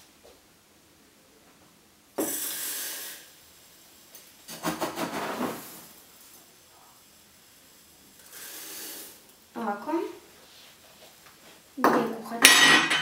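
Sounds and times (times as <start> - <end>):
dry ice hissing in pot: 2.2 - 11.7.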